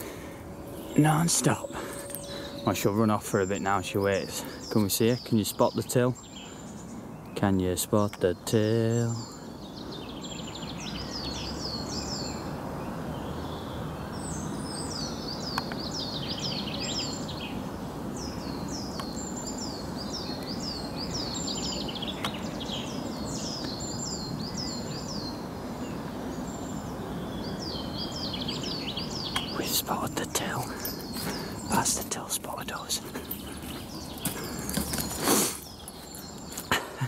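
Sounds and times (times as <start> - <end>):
low background noise: 0.0 - 37.0
songbird singing: 0.0 - 37.0.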